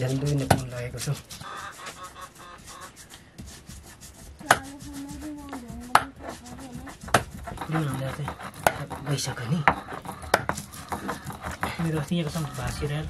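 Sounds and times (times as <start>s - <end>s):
knife chopping on a cutting board: 5.8s - 12.5s.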